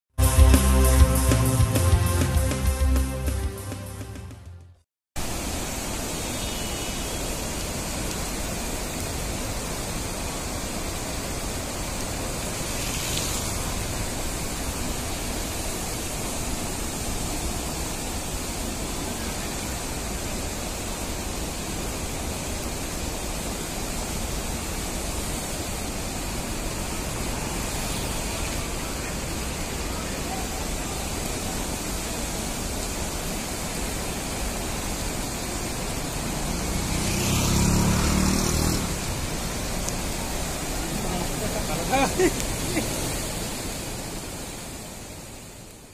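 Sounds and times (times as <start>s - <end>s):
stream water rushing: 5.2s - 45.9s.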